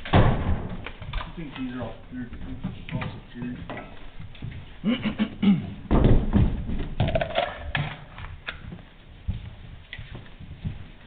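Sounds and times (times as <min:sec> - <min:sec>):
body camera knocks and thuds: 0:00.0 - 0:01.2, 0:05.9 - 0:07.2.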